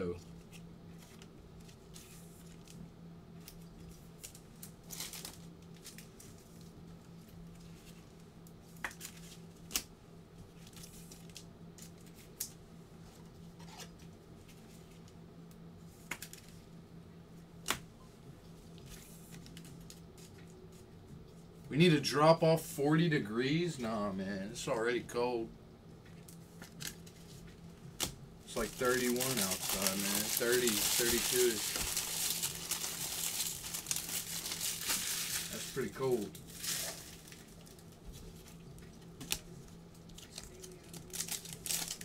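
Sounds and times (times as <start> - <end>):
steady low hum: 0.0 - 42.0
trading cards clicking and rustling: 28.0 - 35.9.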